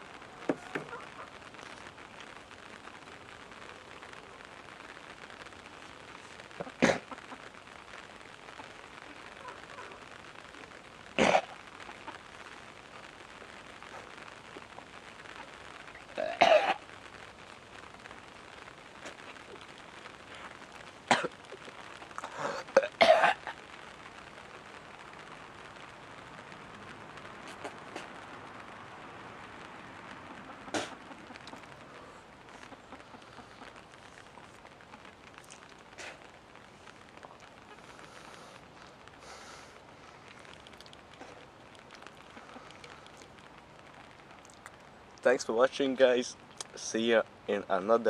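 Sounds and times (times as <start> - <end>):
faint steady background hiss: 0.0 - 48.0
man coughing: 22.4 - 23.4.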